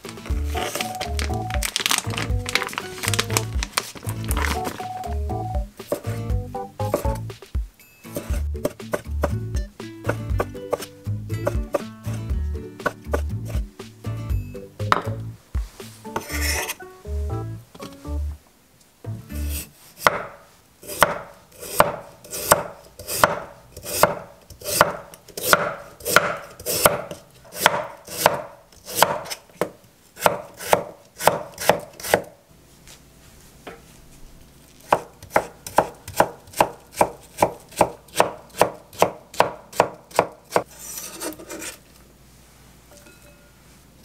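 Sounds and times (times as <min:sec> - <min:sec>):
knife slicing on wooden board: 0:16.2 - 0:16.8, 0:39.8 - 0:41.8.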